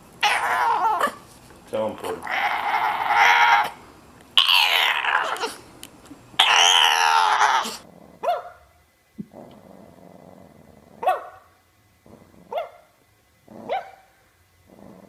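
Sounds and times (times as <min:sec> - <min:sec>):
dog crying: 0:00.2 - 0:01.2, 0:02.1 - 0:03.8, 0:04.4 - 0:05.6, 0:06.4 - 0:08.6
dog yipping: 0:00.2 - 0:01.2, 0:04.4 - 0:05.6, 0:06.4 - 0:08.6, 0:11.0 - 0:11.5, 0:12.5 - 0:12.8, 0:13.7 - 0:14.1.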